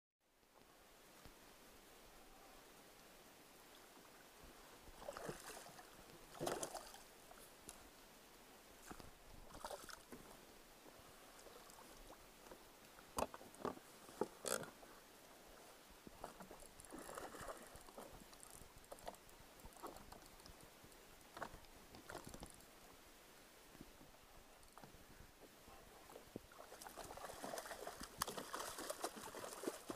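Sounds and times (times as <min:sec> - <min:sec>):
quiet water splashing: 0:00.2 - 0:29.9.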